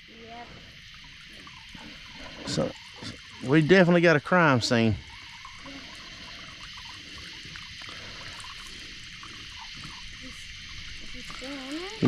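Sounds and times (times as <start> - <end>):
frogs croaking: 0.0 - 12.0
insects chirping: 0.0 - 12.0
water dripping and trickling: 0.0 - 12.0.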